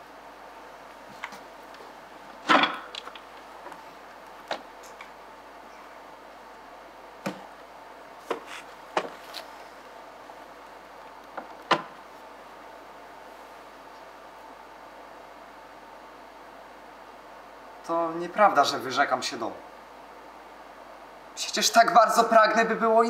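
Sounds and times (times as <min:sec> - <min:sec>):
low hiss: 0:00.0 - 0:23.0.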